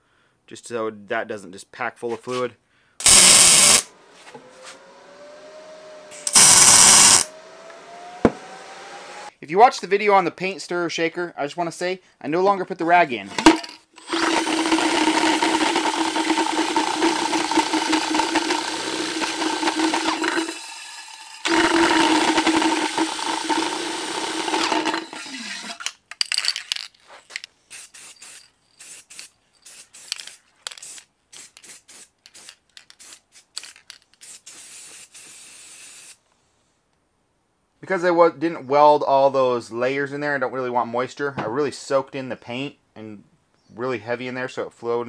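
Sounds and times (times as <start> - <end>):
spray can hisses: 3.0 - 3.9, 6.2 - 7.3, 27.7 - 36.2
cordless drill spinning: 3.0 - 8.8, 14.0 - 26.0.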